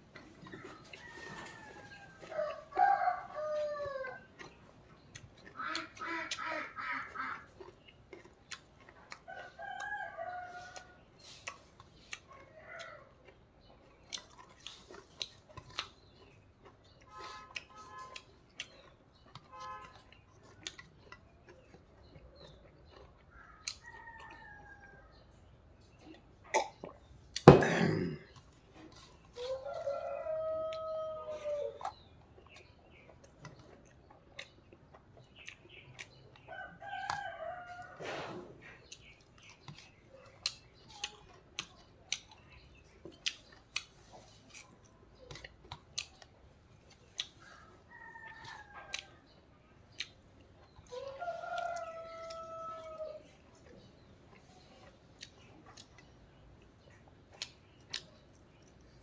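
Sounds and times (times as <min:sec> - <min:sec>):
chewing and smacking: 0:00.0 - 0:27.5, 0:28.2 - 0:59.0
rooster crowing: 0:29.5 - 0:31.7, 0:51.0 - 0:53.2.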